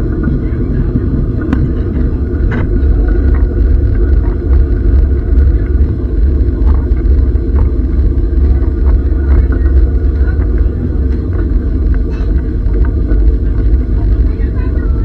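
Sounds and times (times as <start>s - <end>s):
train rumbling: 0.0s - 15.0s.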